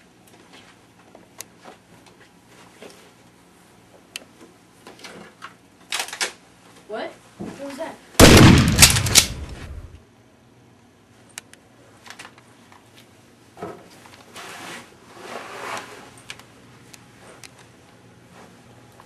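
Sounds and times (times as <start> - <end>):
gunshot: 8.2 - 10.0.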